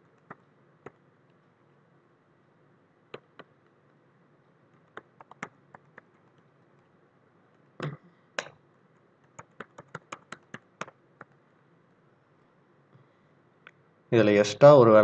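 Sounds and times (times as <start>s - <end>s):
computer keyboard typing: 0.2s - 1.0s, 4.7s - 6.5s, 9.2s - 11.4s.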